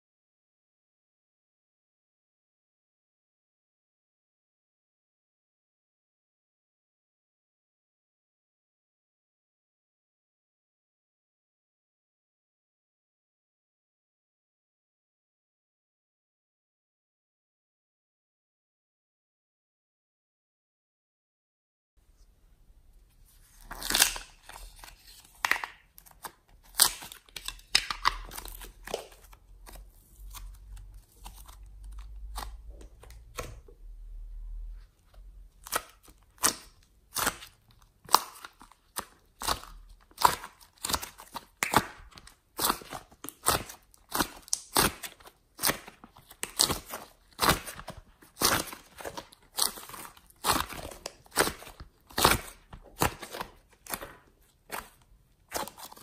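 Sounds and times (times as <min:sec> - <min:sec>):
clay squishing and crackling: 0:22.0 - 0:33.9, 0:34.7 - 0:56.0
plastic lid clicking and crinkling: 0:23.7 - 0:29.8.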